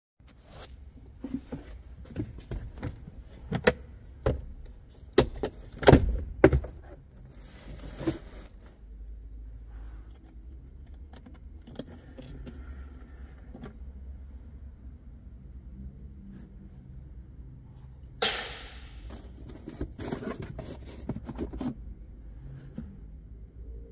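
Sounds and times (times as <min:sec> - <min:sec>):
plastic glove box clicks and rattles: 0:03.4 - 0:06.9.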